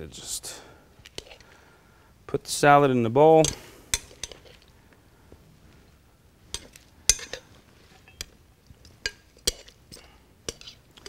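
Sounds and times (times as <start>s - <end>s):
glass bowl clinking on plate: 6.6s - 8.4s.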